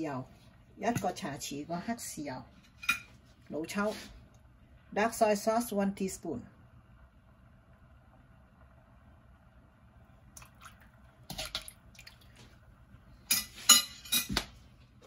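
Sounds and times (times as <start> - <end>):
kitchen utensils clinking: 13.3 - 14.4.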